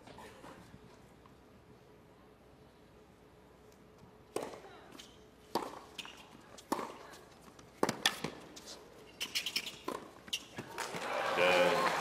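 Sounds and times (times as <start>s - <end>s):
tennis rackets striking ball: 4.3s - 4.6s, 5.5s - 7.1s, 7.8s - 8.4s
tennis ball bouncing: 4.3s - 11.1s.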